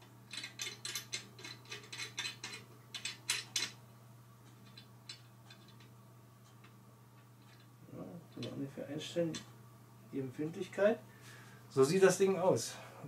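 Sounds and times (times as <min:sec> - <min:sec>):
small metal clicks and knocks: 0:00.3 - 0:03.8, 0:04.4 - 0:07.7.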